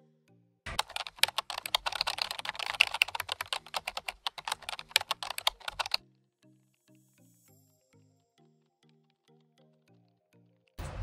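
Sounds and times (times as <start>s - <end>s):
faint background music: 0.0s - 11.0s
keyboard key clicks: 0.7s - 6.0s.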